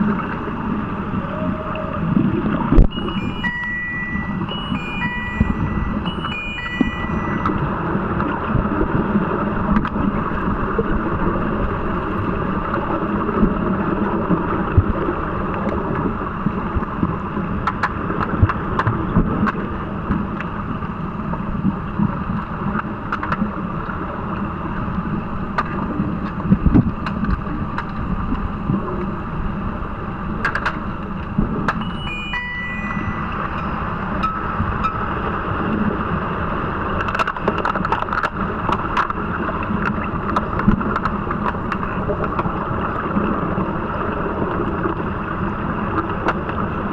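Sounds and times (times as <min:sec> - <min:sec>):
underwater rushing water and bubbles: 0:00.0 - 0:46.9.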